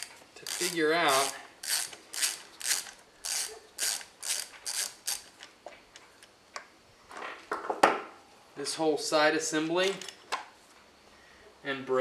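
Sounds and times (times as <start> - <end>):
ratchet wrench clicking: 0.0 - 5.4.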